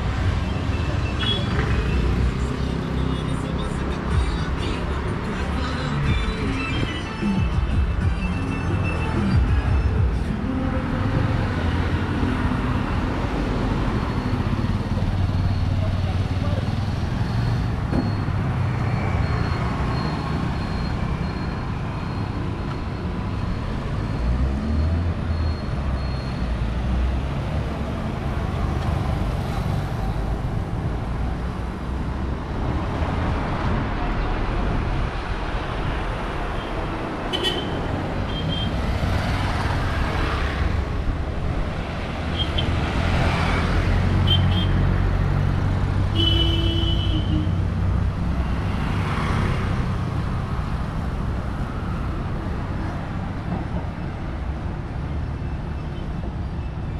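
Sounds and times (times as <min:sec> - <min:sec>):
vehicle horn beeps: 0:00.7 - 0:02.0, 0:37.3 - 0:38.8, 0:44.2 - 0:44.8, 0:46.1 - 0:47.6.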